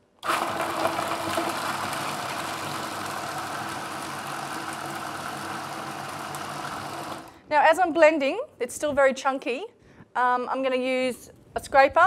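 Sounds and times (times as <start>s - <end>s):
food processor chopping: 0.2s - 7.4s.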